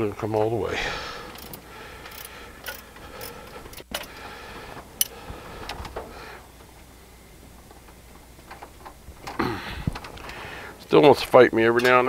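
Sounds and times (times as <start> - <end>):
hand ratchet clicking: 1.3 - 4.1
metal tools clinking: 1.3 - 4.1.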